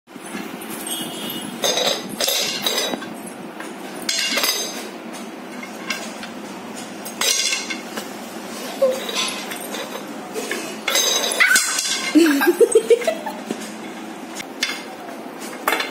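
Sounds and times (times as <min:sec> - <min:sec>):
metal bowl clanking on concrete: 0:00.7 - 0:03.1, 0:08.9 - 0:12.2.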